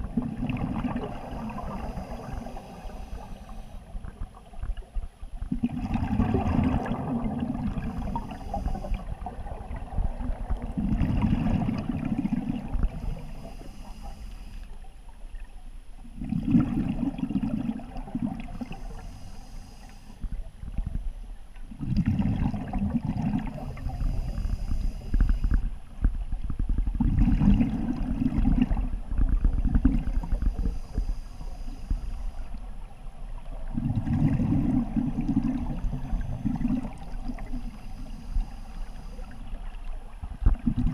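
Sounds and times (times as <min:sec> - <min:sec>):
regulator inhalation hiss: 0:01.5 - 0:04.0, 0:07.8 - 0:09.2, 0:12.9 - 0:14.8, 0:18.6 - 0:20.3, 0:23.6 - 0:25.6, 0:30.3 - 0:32.6, 0:35.8 - 0:39.6
diver exhaling bubbles: 0:05.5 - 0:08.6, 0:16.2 - 0:18.8, 0:21.8 - 0:24.7, 0:33.7 - 0:37.6.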